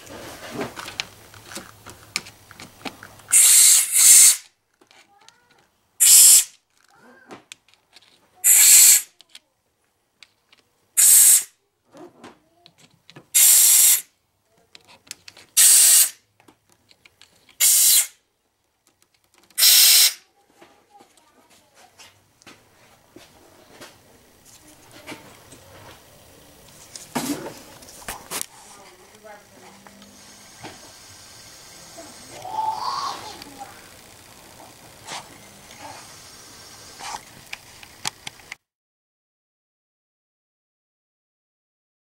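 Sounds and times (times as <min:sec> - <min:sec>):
air blow gun hissing blasts: 0:03.3 - 0:04.5, 0:06.0 - 0:06.6, 0:08.4 - 0:09.1, 0:11.0 - 0:11.5, 0:13.3 - 0:14.1, 0:15.6 - 0:16.2, 0:17.6 - 0:18.2, 0:19.6 - 0:20.2, 0:30.1 - 0:37.8.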